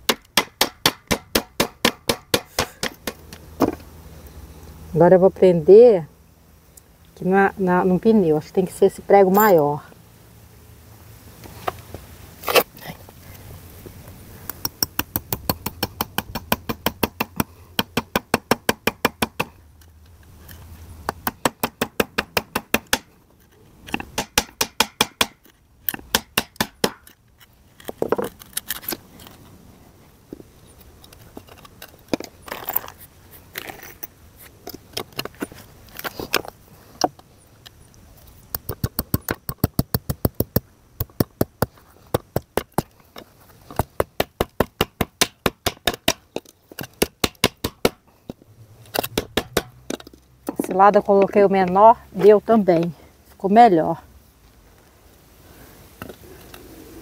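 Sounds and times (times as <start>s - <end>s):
hammer driving nails into wood: 0.0s - 3.8s, 23.9s - 27.2s, 43.8s - 48.0s, 48.9s - 50.0s.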